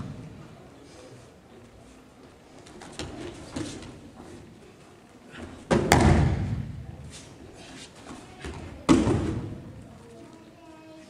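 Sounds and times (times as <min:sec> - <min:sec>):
sharp slap on mat: 0:05.7 - 0:06.8.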